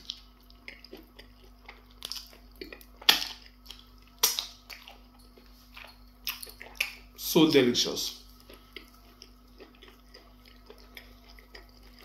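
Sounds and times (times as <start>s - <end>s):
wet mouth smacks and chewing: 0.0s - 7.1s, 8.3s - 12.0s.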